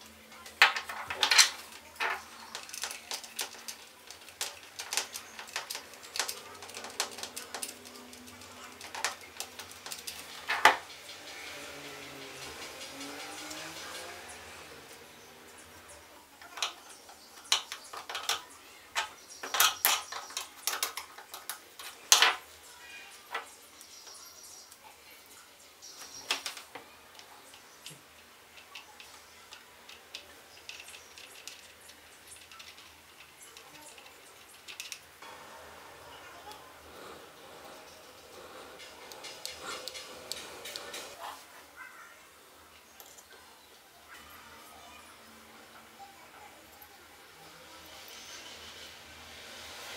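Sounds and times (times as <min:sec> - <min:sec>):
plastic parts clicking: 0:00.4 - 0:10.9, 0:16.4 - 0:22.4, 0:26.2 - 0:35.2.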